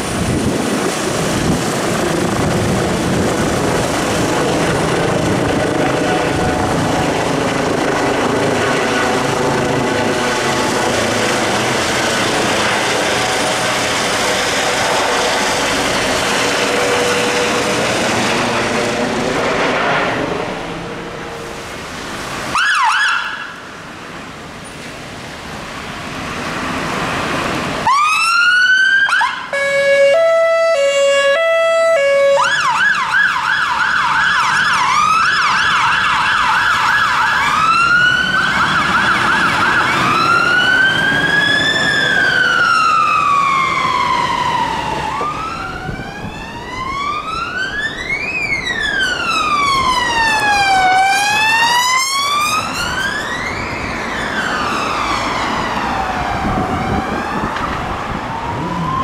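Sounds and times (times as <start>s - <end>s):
helicopter rotor and turbine: 0.0s - 21.2s
fire engine siren: 0.0s - 24.5s, 25.2s - 59.0s.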